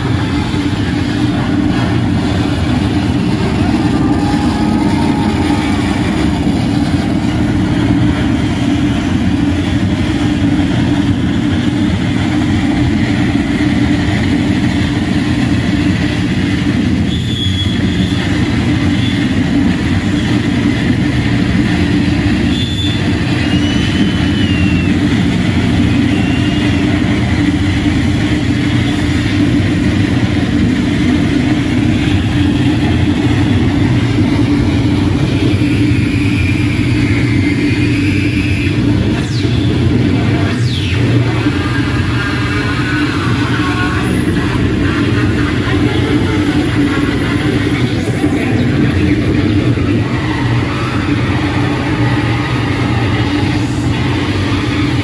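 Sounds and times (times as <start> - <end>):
distorted electronic noise: 0.0 - 55.0
high whistling tones: 17.0 - 19.4, 22.3 - 27.2, 35.0 - 41.4.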